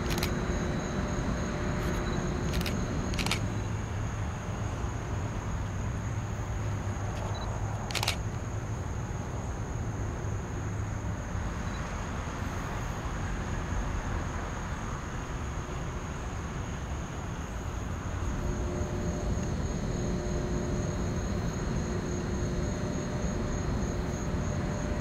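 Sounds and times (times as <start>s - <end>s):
sharp click: 0.0s - 0.4s, 1.9s - 3.5s, 7.9s - 8.3s
high-pitched insect drone: 0.0s - 3.8s, 18.1s - 25.0s
low steady rumble: 17.8s - 25.0s.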